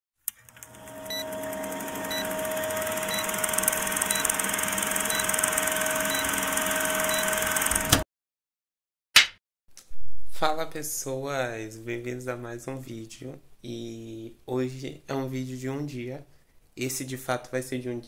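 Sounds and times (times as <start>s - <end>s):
film projector clattering: 0.3s - 8.0s
steady hum: 0.5s - 8.0s.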